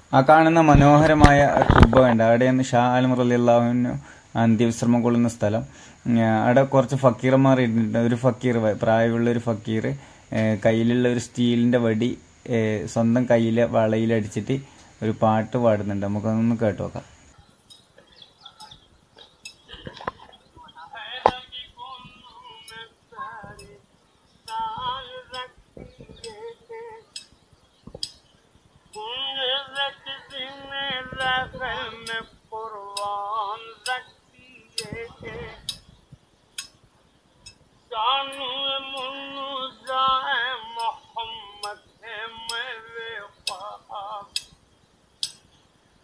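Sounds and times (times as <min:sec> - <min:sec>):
man singing wavering phrases: 0:20.8 - 0:23.8, 0:24.5 - 0:27.1, 0:29.0 - 0:35.8, 0:37.9 - 0:44.5.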